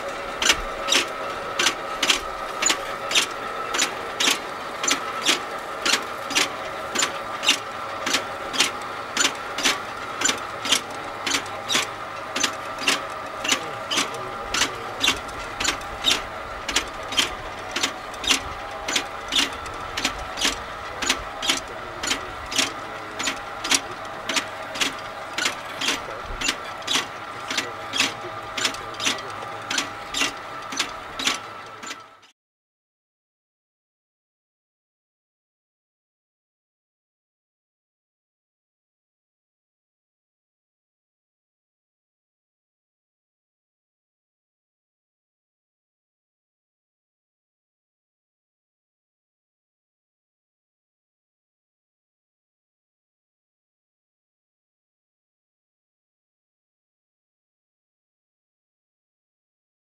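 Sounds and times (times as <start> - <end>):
electric motor whine: 0.0 - 32.3
sharp mechanical clicks: 0.4 - 32.2.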